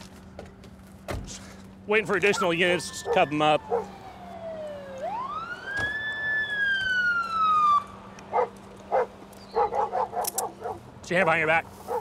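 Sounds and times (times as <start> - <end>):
police siren wail: 2.0 - 8.5.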